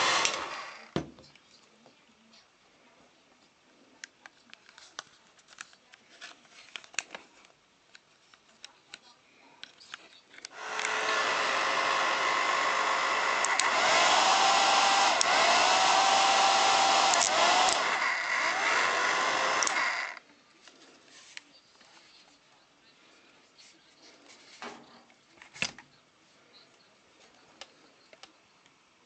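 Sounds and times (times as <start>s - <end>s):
hair dryer blowing: 0.0s - 0.9s, 10.5s - 20.2s
plastic clicks and handling: 4.0s - 10.9s.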